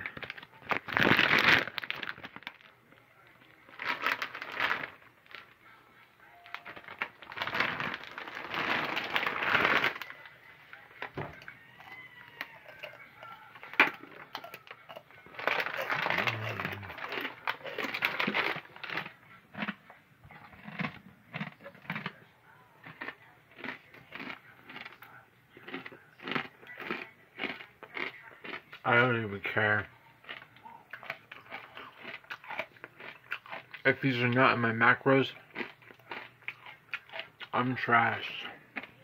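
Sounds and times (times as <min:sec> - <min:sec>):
bag crinkling and rustling: 0:00.0 - 0:02.7, 0:03.6 - 0:05.6, 0:06.4 - 0:10.3, 0:13.6 - 0:19.2
crunchy food being chewed: 0:00.0 - 0:39.0.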